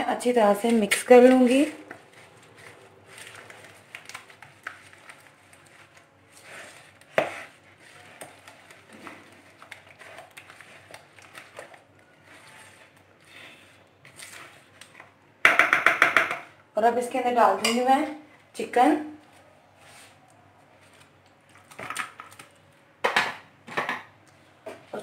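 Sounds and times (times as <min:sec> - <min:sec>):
spoon stirring in a bowl: 0:00.2 - 0:16.5, 0:17.6 - 0:18.0
spoon knocking bowl: 0:15.4 - 0:16.5.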